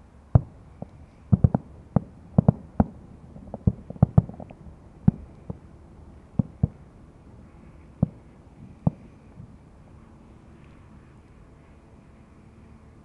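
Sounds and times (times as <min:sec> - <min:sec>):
fireworks exploding: 0:00.4 - 0:05.6.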